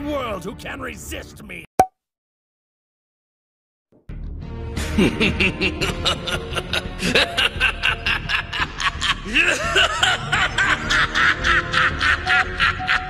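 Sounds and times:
background music: 0:00.0 - 0:01.6, 0:04.1 - 0:13.0
man laughing in rapid bursts: 0:04.8 - 0:13.0.

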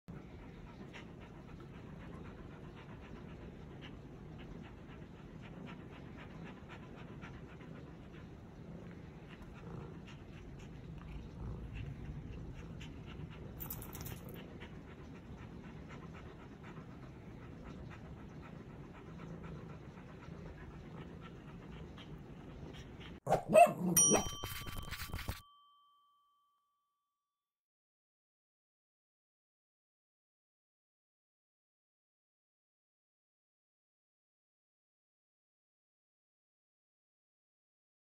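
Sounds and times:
dog panting: 0:00.1 - 0:25.4.

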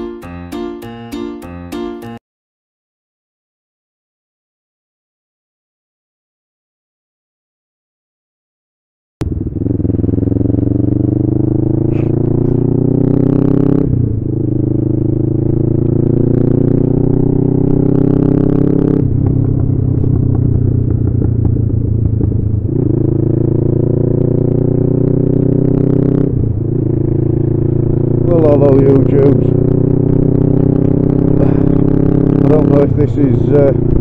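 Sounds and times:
motorcycle engine shifting gears: 0:09.2 - 0:34.0.

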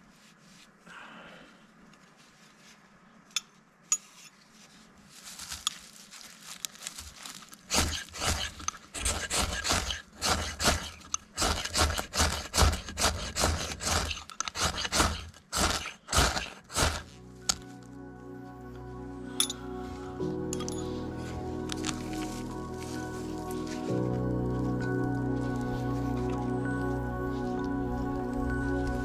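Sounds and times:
knife cutting strokes: 0:07.7 - 0:17.1.

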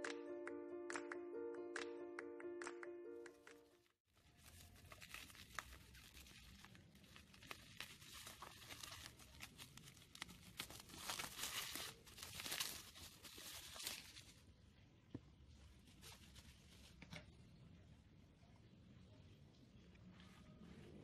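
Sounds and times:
bubble wrap crinkling: 0:04.1 - 0:14.5, 0:15.5 - 0:17.2.

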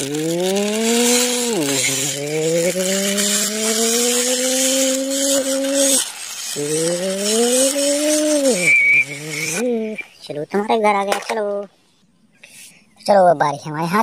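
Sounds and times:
person imitating engine buzzing: 0:00.0 - 0:10.1.

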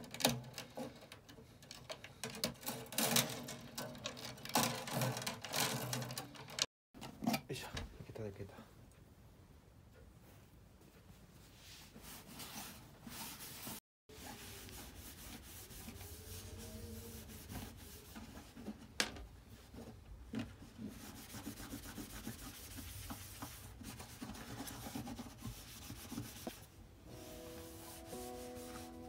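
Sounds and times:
scrubbing against a surface: 0:20.8 - 0:29.0.

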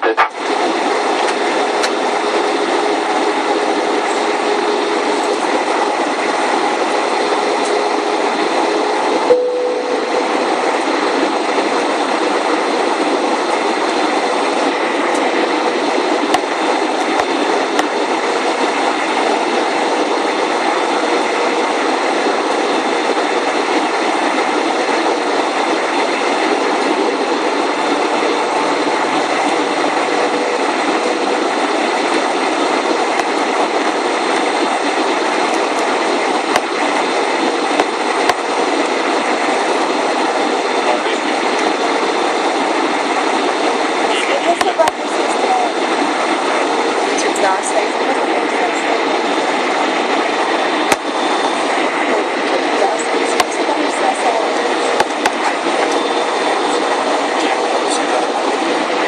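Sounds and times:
airliner engines in cabin: 0:00.0 - 0:59.0.

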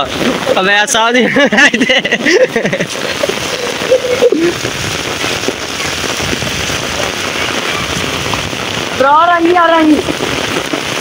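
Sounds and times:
heavy rain splashing into water: 0:00.0 - 0:11.0.

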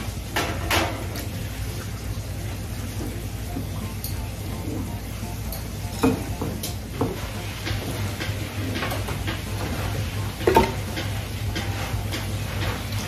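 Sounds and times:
utensils and dishes knocking: 0:10.4 - 0:12.8.

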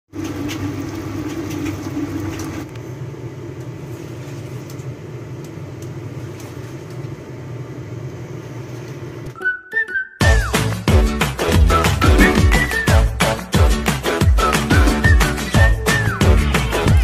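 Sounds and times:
liquid bubbling and crackling: 0:00.1 - 0:07.3.

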